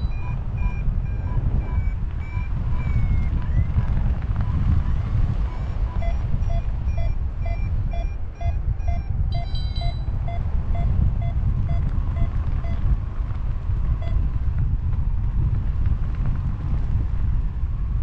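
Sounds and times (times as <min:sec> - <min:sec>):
variometer beeping: 0:00.0 - 0:12.8
wind rumble on microphone: 0:00.0 - 0:18.0.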